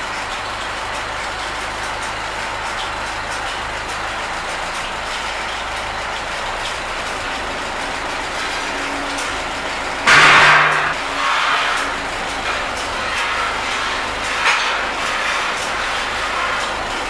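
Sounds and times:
tractor engine idling: 0:00.0 - 0:17.0
loud burst of noise: 0:10.1 - 0:11.4.

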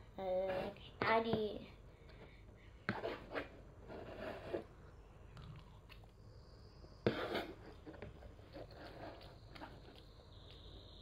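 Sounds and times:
child chewing food: 0:05.3 - 0:06.3, 0:07.7 - 0:10.9.

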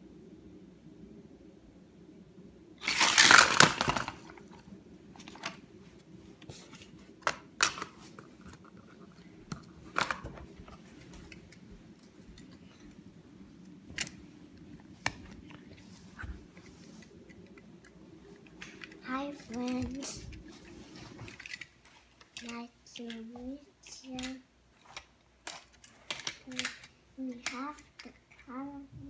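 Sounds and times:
plastic launcher rattling: 0:02.8 - 0:04.4.

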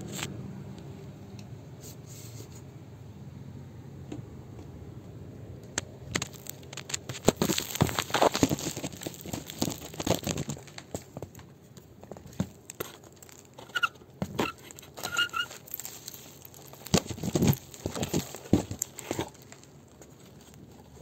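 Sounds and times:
grit rustling: 0:06.0 - 0:21.0
pole scraping wooden boards: 0:12.8 - 0:16.0
short high squeaks: 0:13.6 - 0:15.6.

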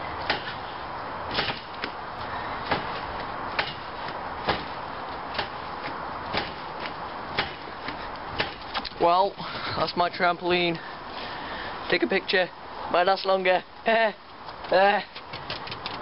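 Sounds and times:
trampoline springs snapping: 0:00.0 - 0:09.0.

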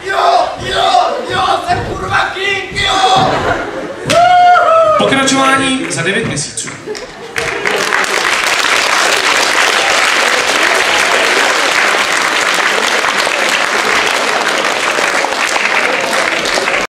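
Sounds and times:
audience applauding: 0:06.6 - 0:16.9.

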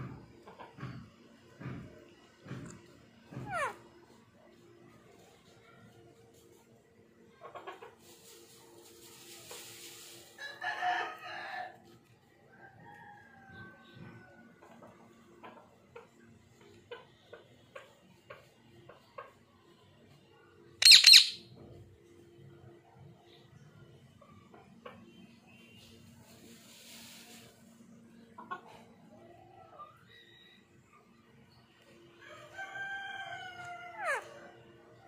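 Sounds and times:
parakeet calling: 0:20.8 - 0:21.4
shrill parakeet screech: 0:20.8 - 0:21.4.

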